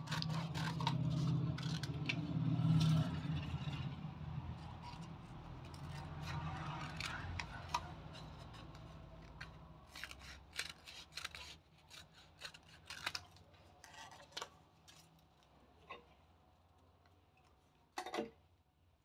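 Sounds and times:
scissors snipping paper: 0:00.0 - 0:03.9, 0:04.6 - 0:15.1.

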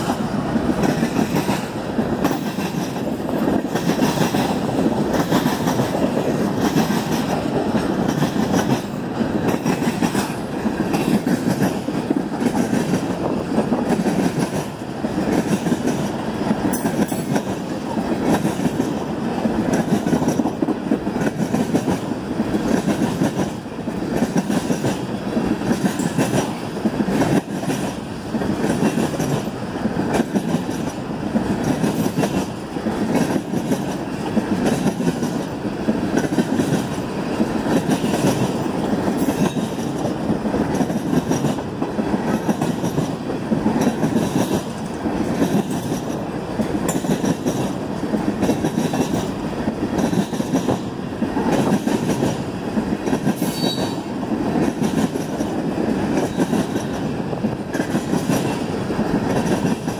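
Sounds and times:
freight train rumbling past: 0:00.0 - 0:59.9
train wheels clacking: 0:00.0 - 0:59.9.

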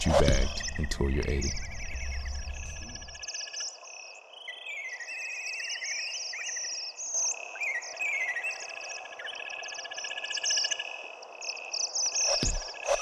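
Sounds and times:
low drone: 0:00.0 - 0:03.2
birds and insects chirping: 0:00.0 - 0:13.0.

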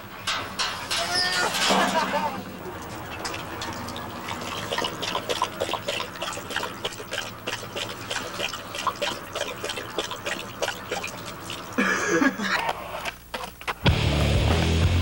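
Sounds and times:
dog lapping water: 0:02.6 - 0:11.9.

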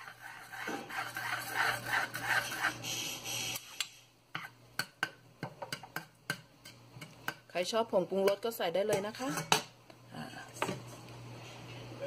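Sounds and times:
spatula scraping frying pan: 0:00.0 - 0:03.8, 0:09.0 - 0:09.5.

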